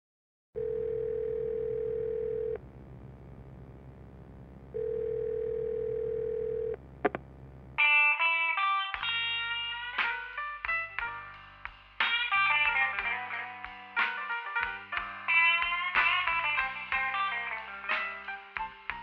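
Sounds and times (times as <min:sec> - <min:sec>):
telephone ringback tone: 0:00.6 - 0:02.6, 0:04.7 - 0:06.8
low hum: 0:00.6 - 0:07.8
electric guitar: 0:07.8 - 0:11.3, 0:12.0 - 0:19.0.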